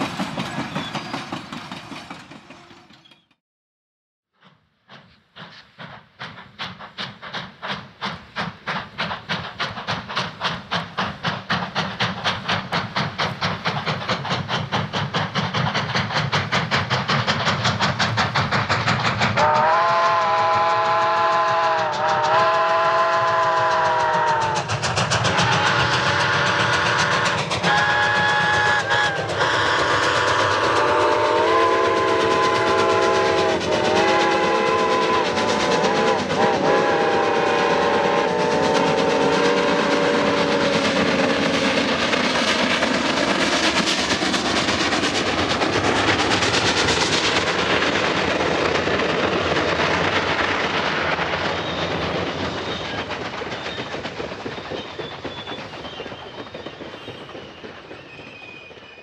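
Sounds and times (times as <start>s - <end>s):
train wheels clicking on rail joints: 0.0s - 3.4s, 4.4s - 59.0s
steam locomotive exhaust: 4.4s - 59.0s
steam locomotive whistle chord: 19.4s - 24.5s, 25.6s - 40.8s.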